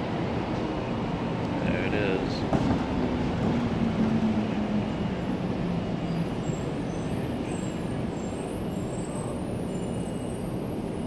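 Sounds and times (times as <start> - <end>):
tram running rumble: 0.0 - 11.0.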